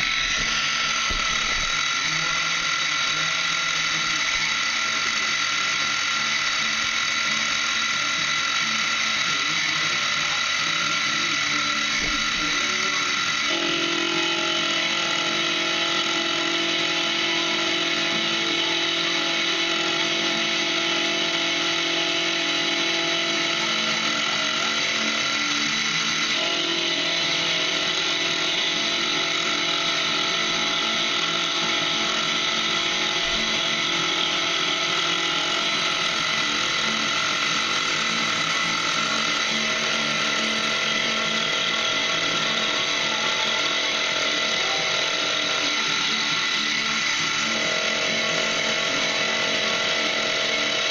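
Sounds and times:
milling machine cutting metal: 0:00.0 - 0:50.9.

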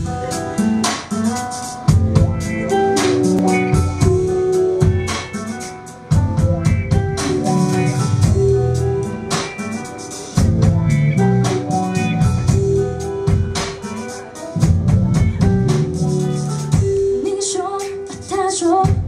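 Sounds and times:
distant live band playing: 0:00.0 - 0:19.0
drum kit beat: 0:00.0 - 0:19.0
person singing: 0:17.2 - 0:19.0.

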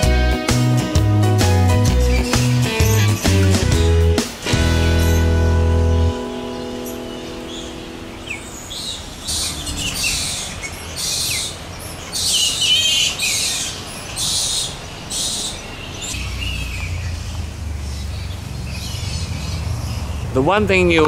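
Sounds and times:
flying foxes screeching: 0:01.9 - 0:04.0, 0:04.8 - 0:05.6, 0:06.5 - 0:20.4.

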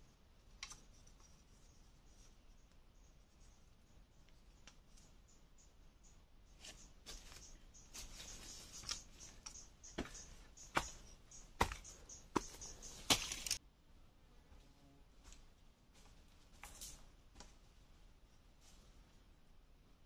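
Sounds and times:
rustling of dry leaves: 0:06.6 - 0:13.6.

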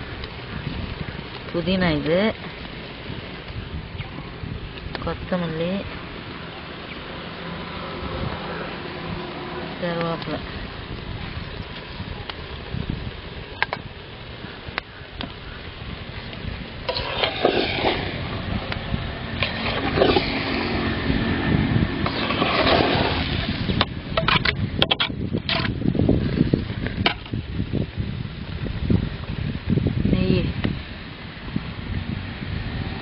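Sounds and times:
steady low rumble: 0:00.0 - 0:33.0
ladle scraping rice in metal pot: 0:16.9 - 0:18.2, 0:19.4 - 0:20.6, 0:22.0 - 0:23.4.

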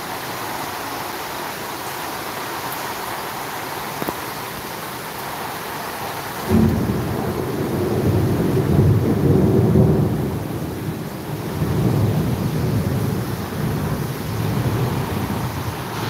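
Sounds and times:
steady rainfall: 0:00.0 - 0:16.0
rolling thunder: 0:06.4 - 0:16.0.

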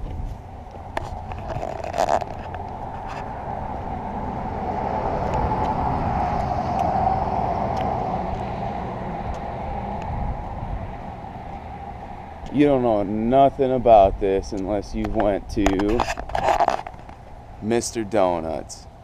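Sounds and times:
road vehicle passing: 0:00.0 - 0:19.0.

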